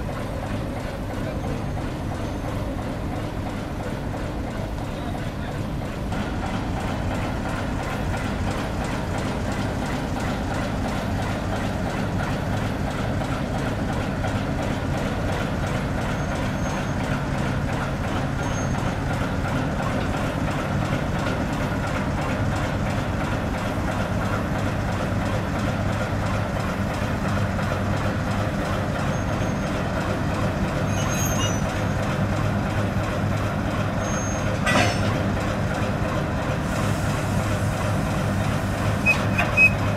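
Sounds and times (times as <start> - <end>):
diesel locomotive engine running: 0.0 - 39.9
short high squeaks: 30.9 - 31.8, 39.0 - 39.9
metallic clank: 34.6 - 35.2.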